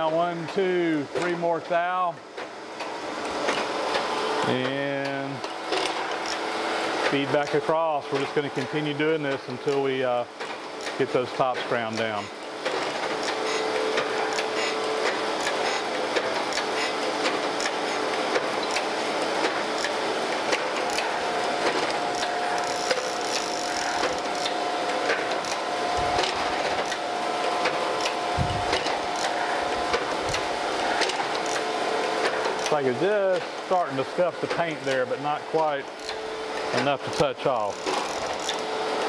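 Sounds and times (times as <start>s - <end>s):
surface grinder running: 13.1s - 33.0s
grinding wheel hiss with ticks: 21.7s - 25.6s.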